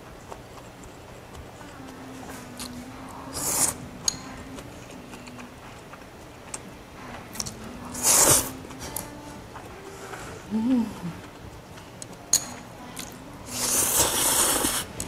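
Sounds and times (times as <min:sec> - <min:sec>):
loud noodle slurps: 0:13.6 - 0:14.9.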